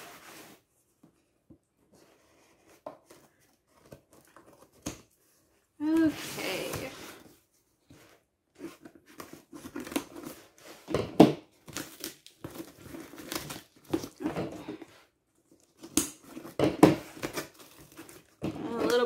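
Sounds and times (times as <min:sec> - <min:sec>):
cardboard box crinkling and rustling: 0:11.5 - 0:14.6, 0:15.6 - 0:19.0.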